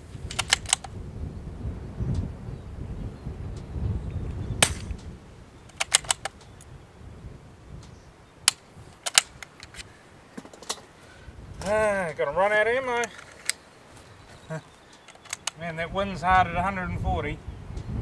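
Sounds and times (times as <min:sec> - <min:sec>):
wind rumble on microphone: 0:00.0 - 0:10.0, 0:11.1 - 0:12.8, 0:15.4 - 0:18.0
rifle bolt clacking: 0:00.3 - 0:00.9, 0:04.6 - 0:05.1, 0:05.7 - 0:06.6, 0:08.5 - 0:10.8, 0:13.0 - 0:13.6, 0:14.9 - 0:15.6
rifle shot crack: 0:04.6 - 0:05.0.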